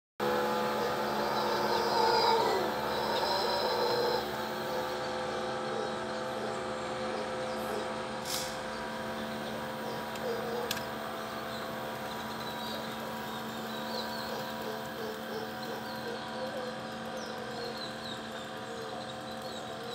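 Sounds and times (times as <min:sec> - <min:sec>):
howler monkey roar: 0:00.2 - 0:08.1, 0:09.4 - 0:11.0, 0:12.7 - 0:19.1
steady motor hum: 0:00.2 - 0:19.9.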